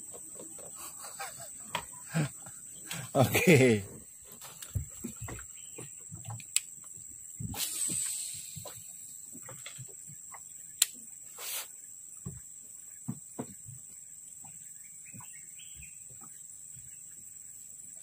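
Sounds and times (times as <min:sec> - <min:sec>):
fishing line whirring off reel: 0:07.6 - 0:09.0.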